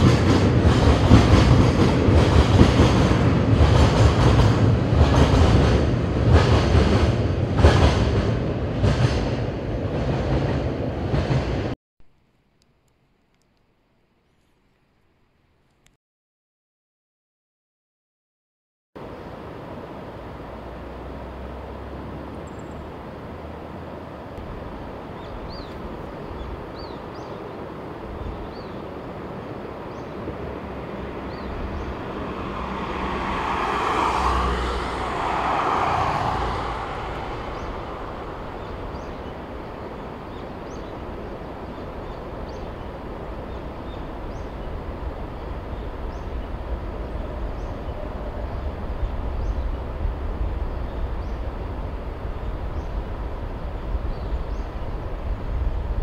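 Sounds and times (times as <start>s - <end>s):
distant electric train rumble: 0.0s - 11.8s, 19.0s - 56.0s
rushing swell: 30.6s - 40.4s.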